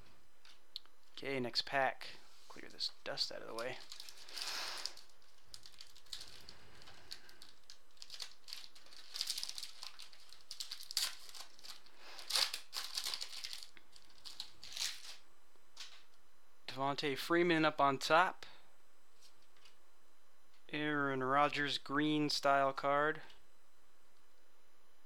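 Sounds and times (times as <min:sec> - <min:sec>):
foil wrapper tearing and crinkling: 0:03.6 - 0:15.2.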